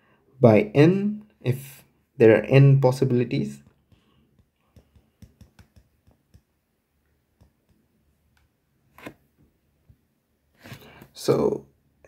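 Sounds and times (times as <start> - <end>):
stylus tapping on glass screen: 3.6 - 6.6, 7.3 - 8.0.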